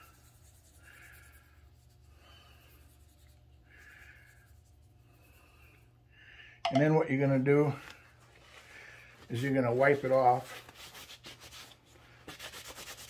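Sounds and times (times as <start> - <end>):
low steady hum: 0.0 - 13.0
brush scrubbing wood: 9.3 - 13.0.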